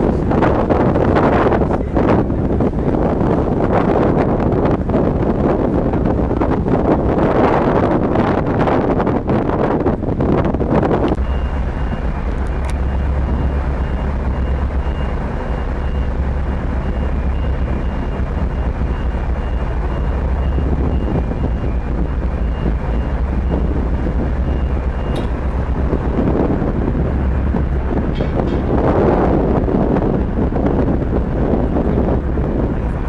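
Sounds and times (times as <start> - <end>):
ship engines rumbling: 0.0 - 33.0
wind buffeting microphone: 0.0 - 33.0
reversing alarm beeping: 11.2 - 27.4.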